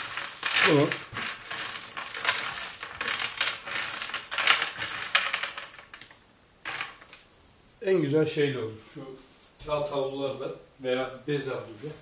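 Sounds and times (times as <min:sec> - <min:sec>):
peanuts rattling on plastic tray: 0:00.0 - 0:07.2
papery skins rustling: 0:00.0 - 0:07.3.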